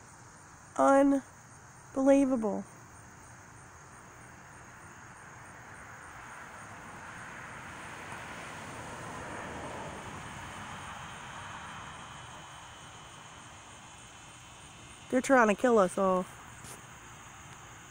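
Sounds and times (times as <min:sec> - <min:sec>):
crickets trilling: 0:00.0 - 0:17.9
distant jet airplane rumble: 0:02.8 - 0:17.9.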